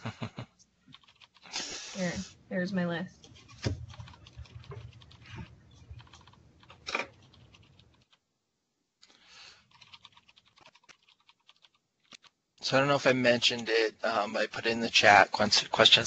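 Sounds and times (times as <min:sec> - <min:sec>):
computer keyboard typing: 0:00.9 - 0:01.5, 0:03.4 - 0:08.2, 0:09.6 - 0:12.3.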